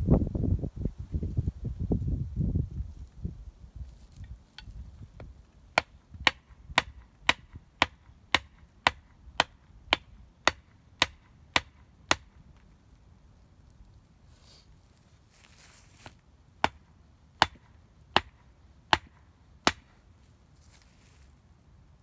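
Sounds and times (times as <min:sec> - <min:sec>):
axe striking wood: 0:05.7 - 0:12.4, 0:16.6 - 0:20.0.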